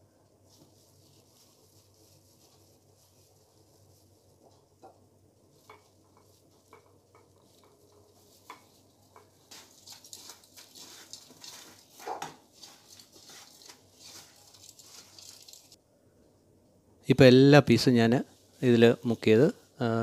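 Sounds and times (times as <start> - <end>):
crunching cornflakes and plastic bag: 12.6 - 15.8.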